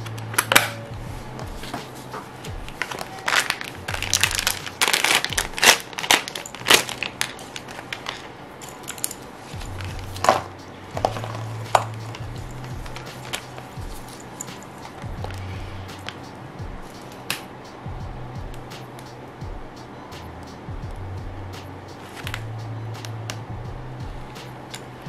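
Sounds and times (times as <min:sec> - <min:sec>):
plastic bag crinkling: 0:02.7 - 0:15.4.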